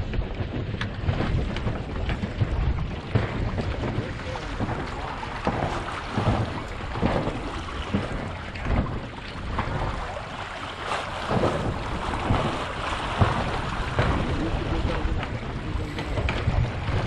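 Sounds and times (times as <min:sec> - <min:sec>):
water slapping against hull: 0:00.0 - 0:17.0
wind buffeting microphone: 0:00.0 - 0:17.0
sudden loud bumps: 0:11.3 - 0:17.0.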